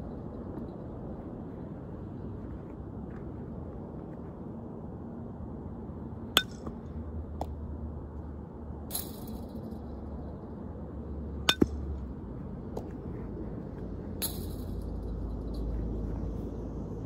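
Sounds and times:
metal bat hitting balls: 6.3s - 6.8s, 8.9s - 9.6s, 11.4s - 12.1s, 14.2s - 15.0s.

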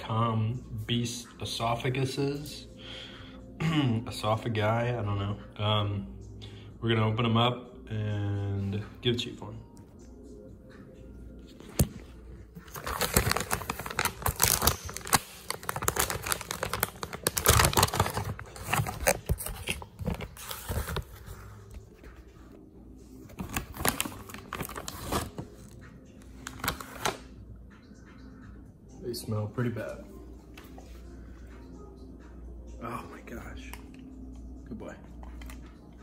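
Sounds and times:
plastic bag crinkling: 12.6s - 21.2s.

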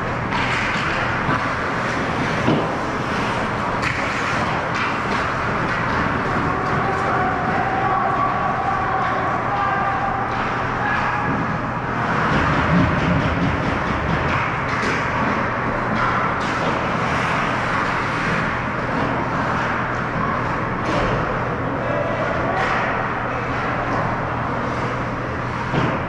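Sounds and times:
ice rink din: 0.0s - 26.0s
sharp knocks of sticks and puck: 0.3s - 7.1s, 9.6s - 20.1s.

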